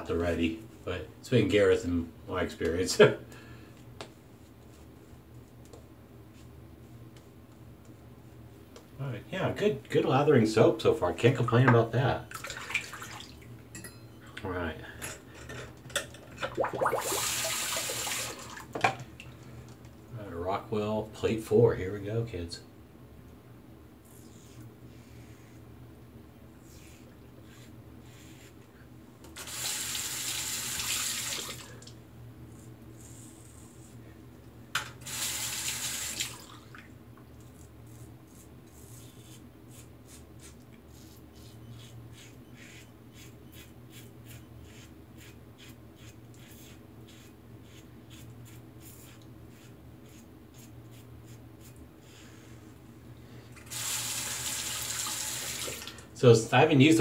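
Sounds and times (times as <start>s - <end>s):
razor scraping stubble: 37.9s - 51.8s.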